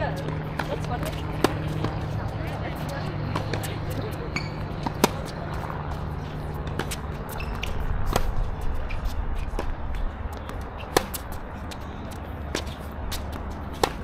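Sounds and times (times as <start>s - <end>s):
tennis rackets striking ball: 0.0s - 14.0s.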